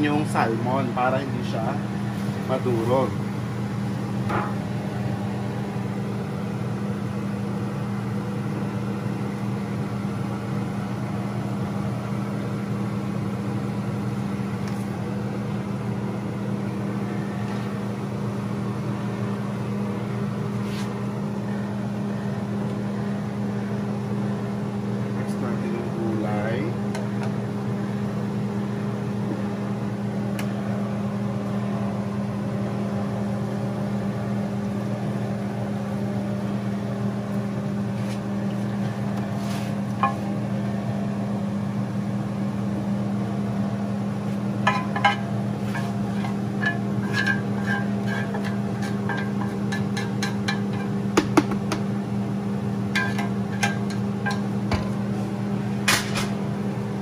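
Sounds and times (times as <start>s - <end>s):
low machine hum: 0.0s - 57.0s
wooden spatula scraping metal pan: 47.0s - 49.9s.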